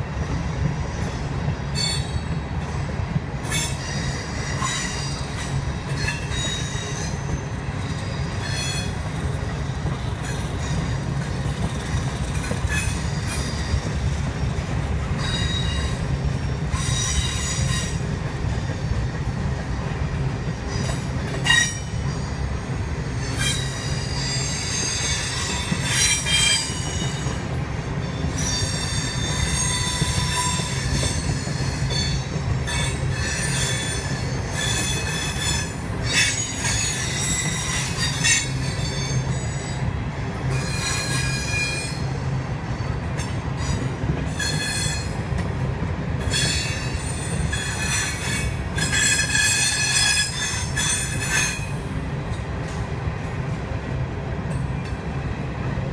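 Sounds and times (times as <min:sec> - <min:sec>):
rumble of train wheels: 0:00.0 - 0:55.9
high-pitched wheel squeals: 0:01.7 - 0:02.3, 0:03.5 - 0:09.0, 0:15.2 - 0:16.1, 0:20.8 - 0:22.4, 0:23.1 - 0:27.4, 0:28.0 - 0:39.8, 0:40.5 - 0:42.1, 0:43.2 - 0:45.2, 0:46.2 - 0:51.7.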